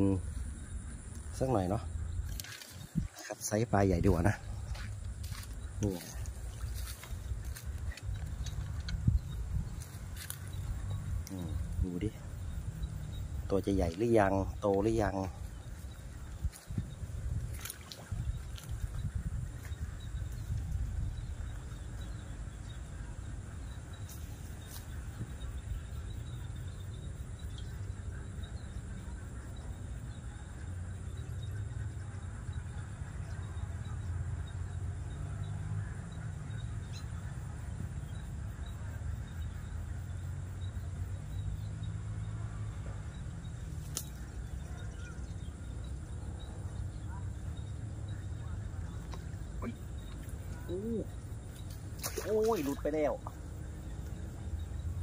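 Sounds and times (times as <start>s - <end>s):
wind rumble on microphone: 0.0s - 30.5s.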